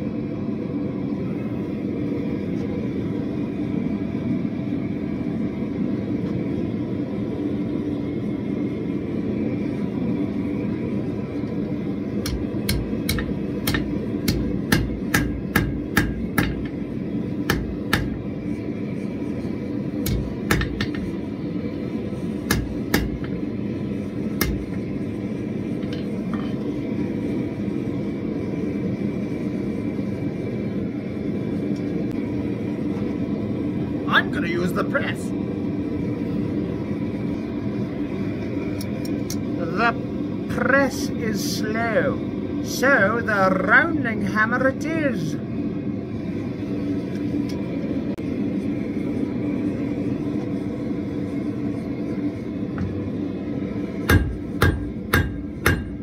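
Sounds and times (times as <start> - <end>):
gas forge rushing: 0.0 - 56.0
hammer striking iron on anvil: 12.2 - 16.8, 17.5 - 18.2, 20.0 - 21.1, 22.5 - 23.4, 24.4 - 24.7, 54.1 - 56.0.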